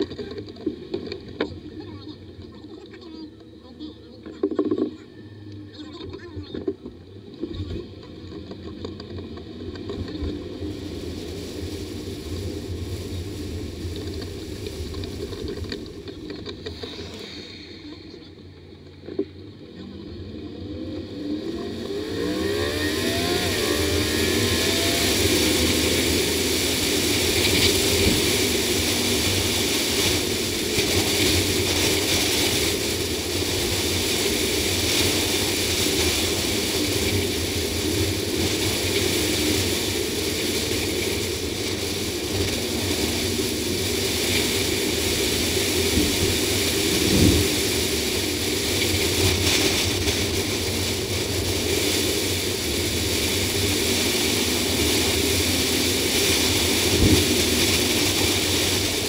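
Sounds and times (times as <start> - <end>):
car engine running: 0.0 - 59.0
tyre and road noise: 0.0 - 59.0
wind rush: 20.6 - 59.0.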